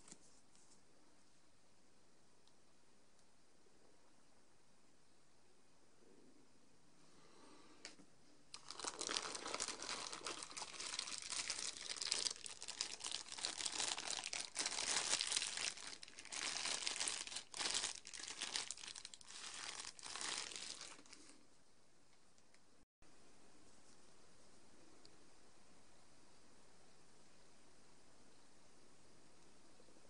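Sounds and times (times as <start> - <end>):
plastic bag crinkling: 8.5 - 21.4.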